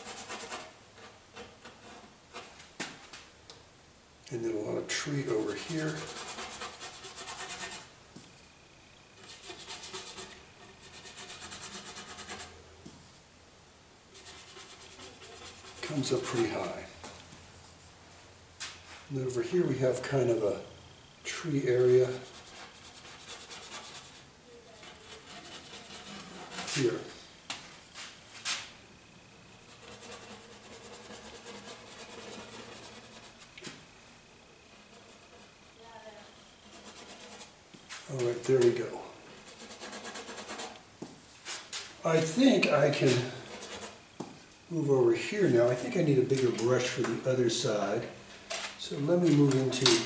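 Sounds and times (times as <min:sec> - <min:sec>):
brush scrubbing paint on canvas: 0:00.0 - 0:02.6, 0:05.2 - 0:07.9, 0:09.2 - 0:12.6, 0:14.1 - 0:17.9, 0:21.4 - 0:27.2, 0:29.6 - 0:40.8, 0:41.4 - 0:44.1.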